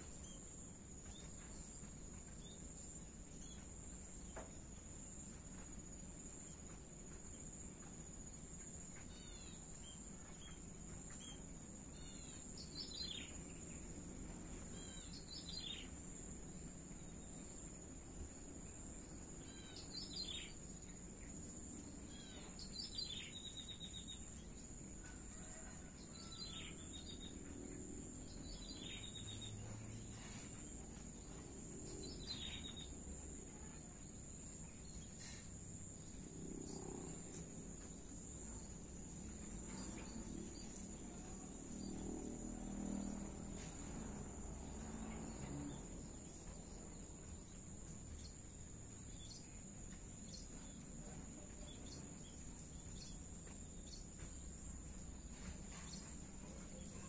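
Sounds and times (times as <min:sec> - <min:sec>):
crickets trilling: 0:00.0 - 0:57.0
distant traffic rumble: 0:24.2 - 0:57.0.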